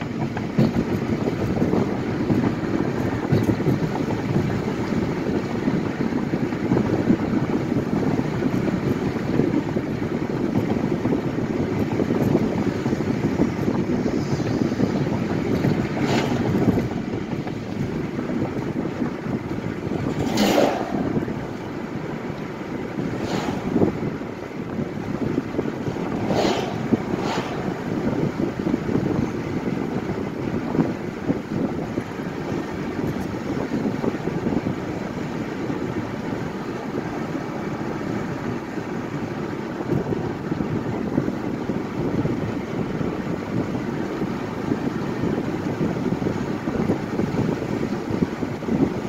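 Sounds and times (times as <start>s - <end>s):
car tyre and wind noise: 0.0s - 49.0s
vehicles swishing past: 11.4s - 30.5s.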